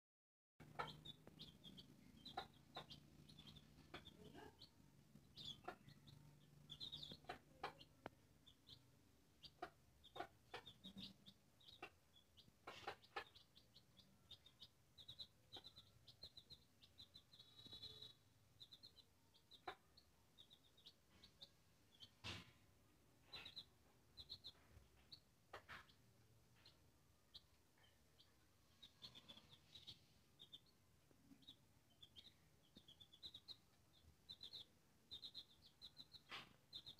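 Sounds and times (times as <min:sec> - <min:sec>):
chicks cheeping: 0:00.6 - 0:22.5, 0:23.1 - 0:36.9
beaks pecking grain on concrete: 0:00.6 - 0:36.9.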